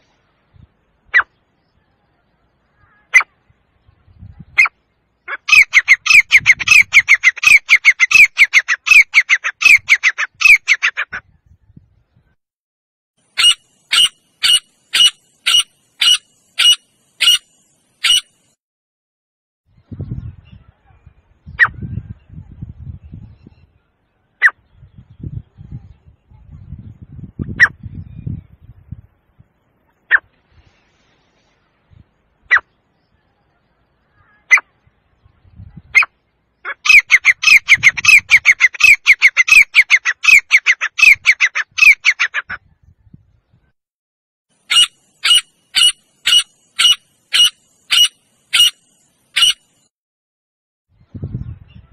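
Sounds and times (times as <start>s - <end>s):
francolin calling: 4.6s - 10.9s, 13.2s - 18.6s, 44.6s - 49.9s.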